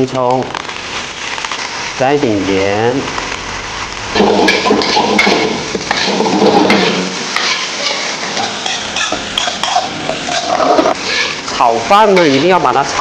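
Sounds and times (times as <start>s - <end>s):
food sizzling in pan: 0.0s - 13.0s
metal spatula scraping wok: 4.1s - 13.0s.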